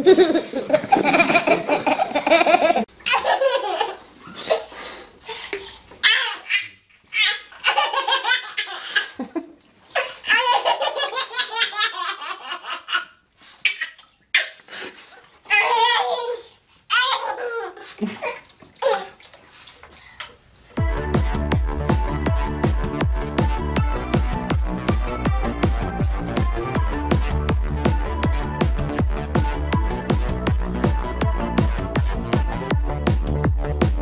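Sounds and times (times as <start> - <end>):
babies laughing: 0.0 - 19.2.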